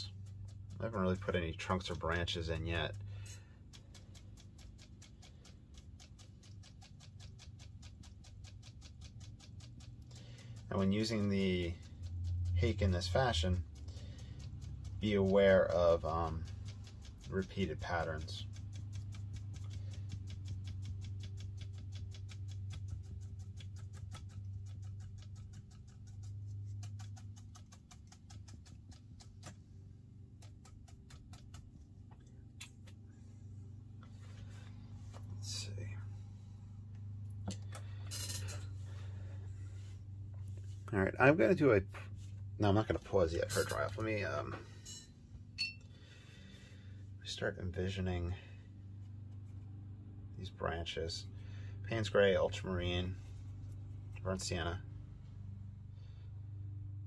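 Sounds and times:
brush tapping on paper: 0:00.0 - 0:33.0
low steady hum: 0:00.0 - 0:57.0.

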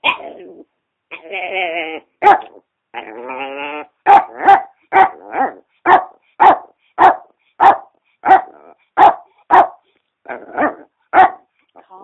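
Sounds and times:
small dog barking: 0:02.2 - 0:02.6, 0:04.0 - 0:09.8, 0:10.6 - 0:11.5.

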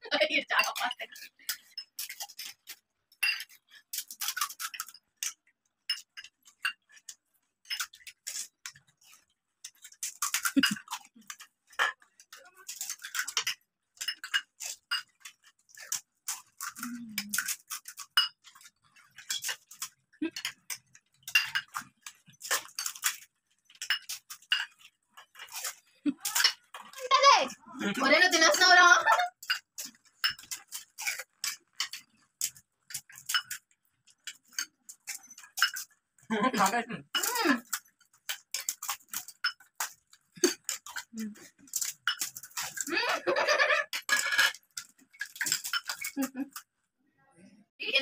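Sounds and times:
spoons clicking on steel plates: 0:28.3 - 0:36.0, 0:43.5 - 0:46.5.

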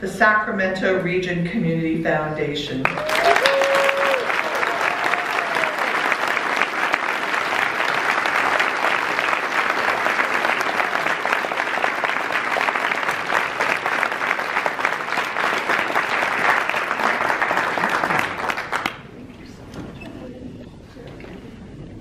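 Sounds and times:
crowd applauding: 0:02.8 - 0:19.1.

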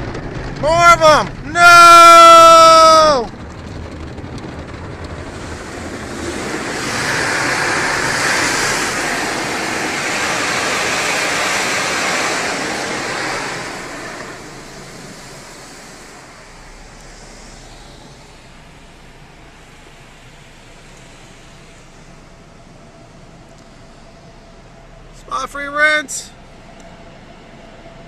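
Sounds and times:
car wash water jets spraying: 0:00.0 - 0:28.0.

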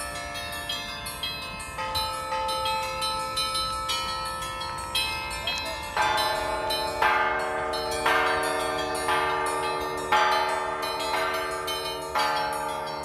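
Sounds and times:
ringing bells struck: 0:00.0 - 0:13.0.

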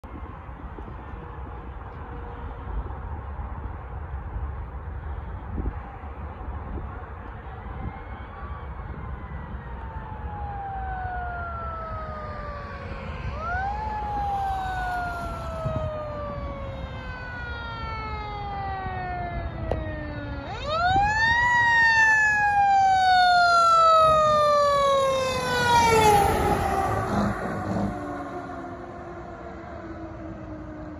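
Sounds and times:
truck engine and road noise: 0:00.0 - 0:30.9
fire engine siren wailing: 0:05.0 - 0:30.9.

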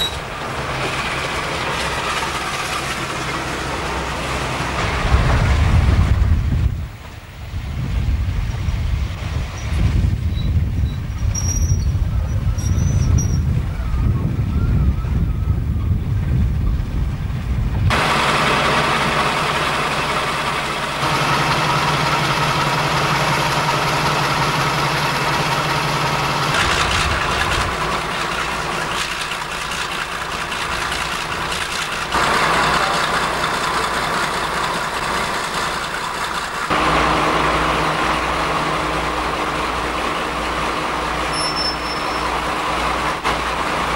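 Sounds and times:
diesel locomotive engines idling: 0:00.0 - 0:43.9
wind on microphone: 0:04.8 - 0:18.0, 0:26.6 - 0:27.9.

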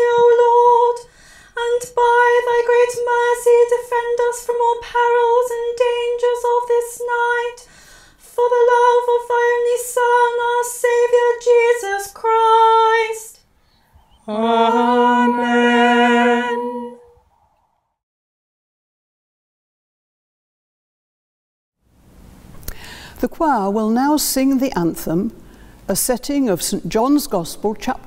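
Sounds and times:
voices singing in harmony: 0:14.1 - 0:17.2
woman chanting a prayer: 0:14.2 - 0:17.0.

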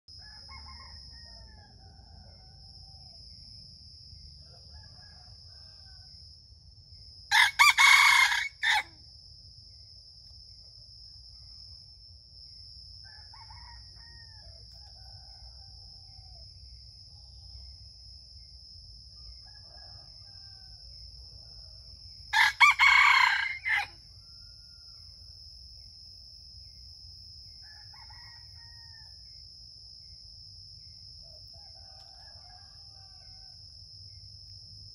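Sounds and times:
rooster crowing: 0:00.1 - 0:03.3, 0:04.4 - 0:06.2, 0:07.3 - 0:09.0, 0:13.0 - 0:16.5, 0:19.1 - 0:21.7, 0:22.3 - 0:25.0, 0:27.6 - 0:29.3, 0:31.4 - 0:33.8.

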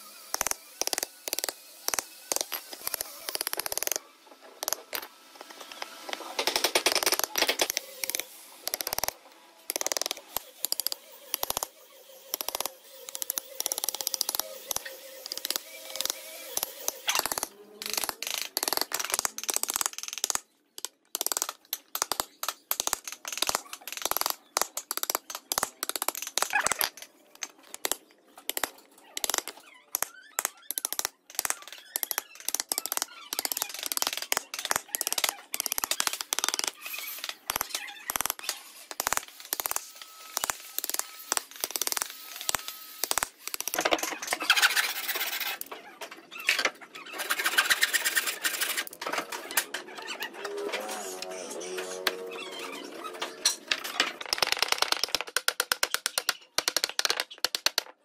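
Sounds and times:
chisel paring wood: 0:00.3 - 0:04.0, 0:12.3 - 0:39.8.

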